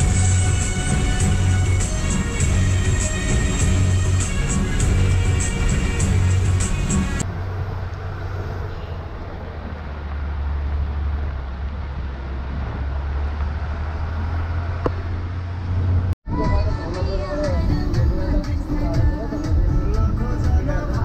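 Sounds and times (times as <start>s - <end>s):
tyre noise on dirt road: 0.0s - 16.2s
bus engine low drone: 0.0s - 21.0s.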